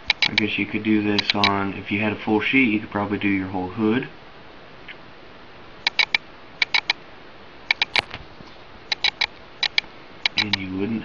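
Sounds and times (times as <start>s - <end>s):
vinyl film clicking: 1.2s - 1.6s, 8.9s - 10.7s.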